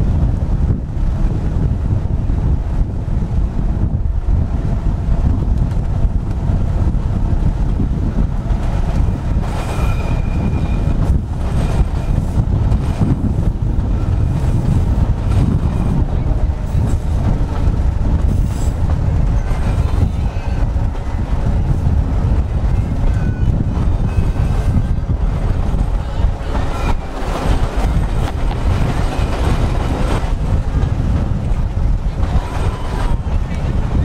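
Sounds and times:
tram wheels rumbling on rail: 0:00.0 - 0:34.0
wind on microphone: 0:00.0 - 0:34.0
wheels squealing: 0:09.4 - 0:12.4, 0:13.9 - 0:30.4, 0:31.4 - 0:34.0.

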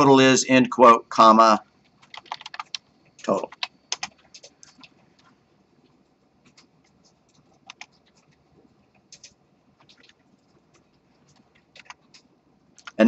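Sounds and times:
keyboard keystrokes: 0:02.0 - 0:05.0, 0:06.4 - 0:13.0.

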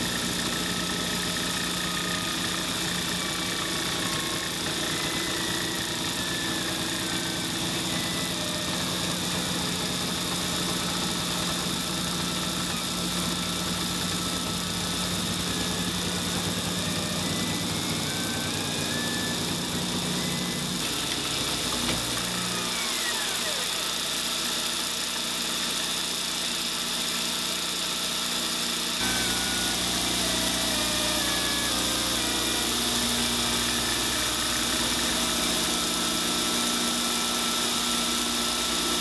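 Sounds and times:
milling machine whine: 0:00.0 - 0:39.0
machine axes tones: 0:00.4 - 0:24.5.

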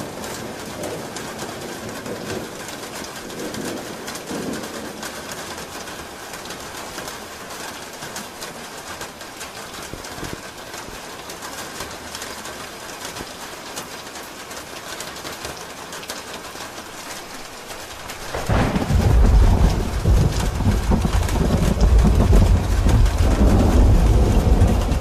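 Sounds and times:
rain on a roof: 0:00.0 - 0:25.0
thunder rumbling: 0:17.9 - 0:25.0.

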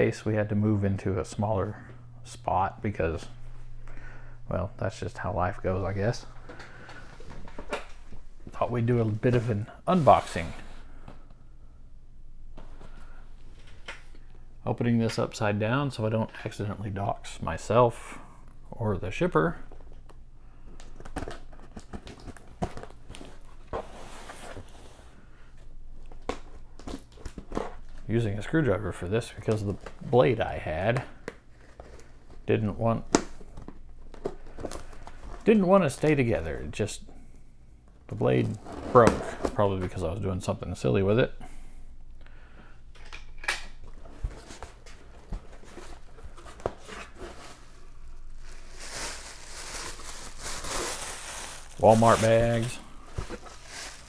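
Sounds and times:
plastic bags rustling: 0:43.8 - 0:54.0
tape tearing: 0:48.3 - 0:54.0.

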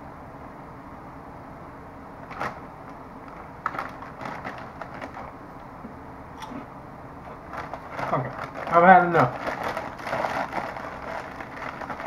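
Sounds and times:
steady low hum: 0:00.0 - 0:12.0
crinkly chip bag crackling: 0:02.2 - 0:02.6, 0:03.3 - 0:05.4, 0:07.3 - 0:12.0
chips crunching: 0:03.3 - 0:05.4, 0:07.3 - 0:12.0.

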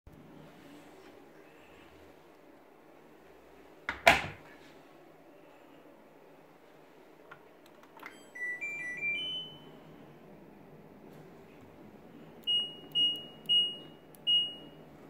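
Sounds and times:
washing machine door slamming: 0:03.9 - 0:04.4
electronic start-up beeps: 0:08.1 - 0:09.8.

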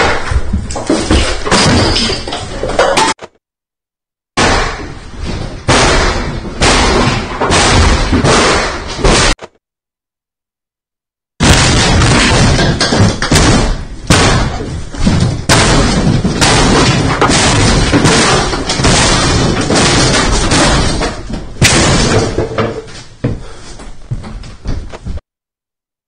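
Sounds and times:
banging and crashing of smashing: 0:00.0 - 0:03.2, 0:04.4 - 0:09.4, 0:11.4 - 0:23.2.

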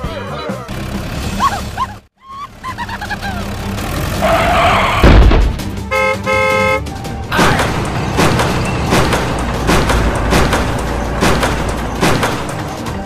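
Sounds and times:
loud low thump: 0:05.0 - 0:05.6
vehicle horn honking: 0:05.9 - 0:06.9.

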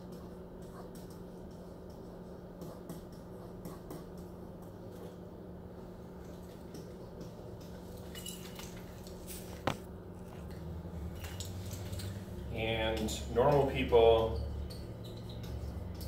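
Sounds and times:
pen tapping and scratching whiteboard: 0:00.0 - 0:05.1
steady low hum: 0:00.0 - 0:16.0.

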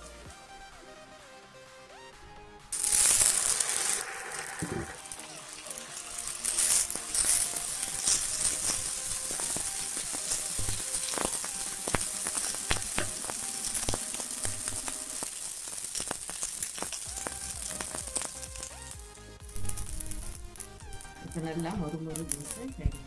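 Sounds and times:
batter sizzling on a hot pan: 0:02.7 - 0:22.8.

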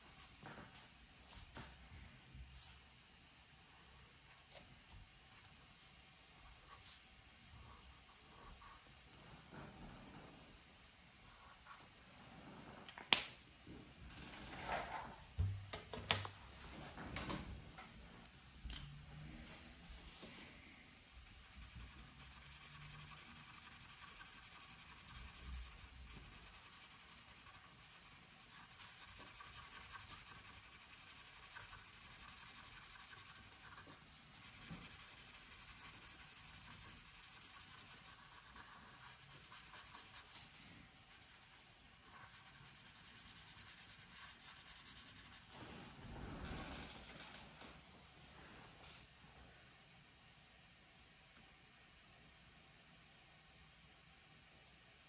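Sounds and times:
marker scratching on paper: 0:21.2 - 0:45.6.

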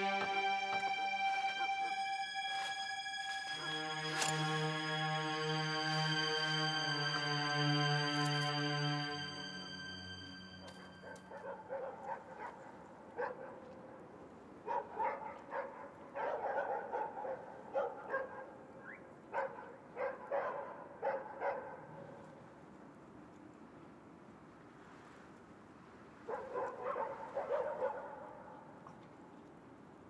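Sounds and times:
dog barking: 0:11.0 - 0:13.8, 0:14.6 - 0:18.6, 0:19.3 - 0:22.1, 0:26.3 - 0:28.6.

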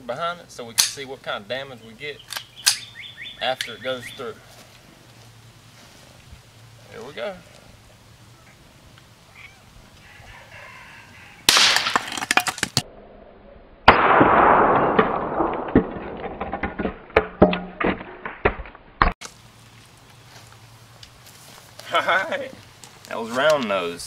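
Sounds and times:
rifle shot crack: 0:11.5 - 0:12.1, 0:13.9 - 0:16.1
slowed-down dull gunshot: 0:13.9 - 0:15.9.

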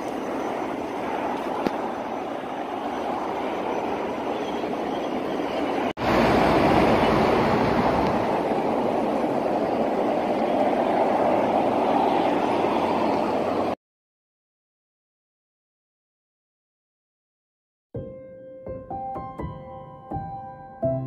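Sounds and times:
expressway traffic rushing: 0:00.0 - 0:13.8.

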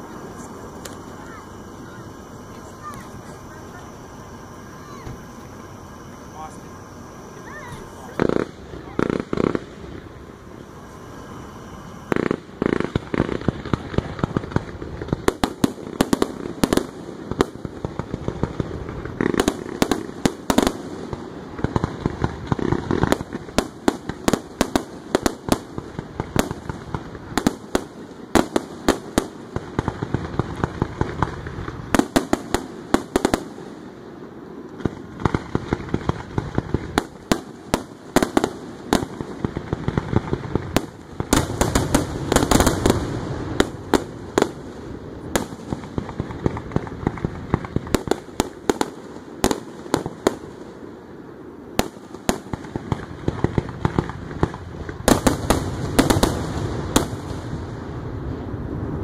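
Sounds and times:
continuous low rumble: 0:00.0 - 0:59.0
fireworks bursting: 0:00.0 - 0:59.0.

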